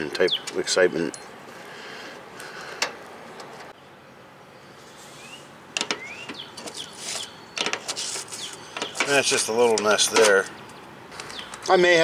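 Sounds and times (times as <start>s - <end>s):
faint bird chirps: 3.8s - 7.6s.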